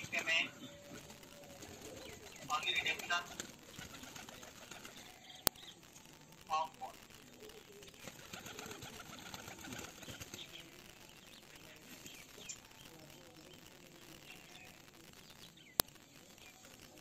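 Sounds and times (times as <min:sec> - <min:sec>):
pigeons flapping wings: 0:00.0 - 0:05.4, 0:07.3 - 0:13.6
faint chirping: 0:00.0 - 0:17.0.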